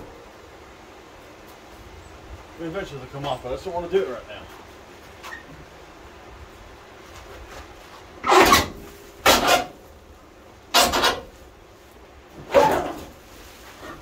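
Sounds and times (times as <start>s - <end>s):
sheet metal scraping: 8.2s - 9.8s, 10.7s - 11.4s.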